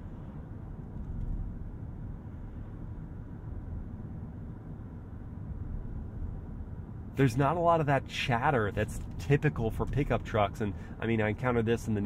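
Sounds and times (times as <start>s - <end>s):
road and tyre rumble in car cabin: 0.0s - 12.0s.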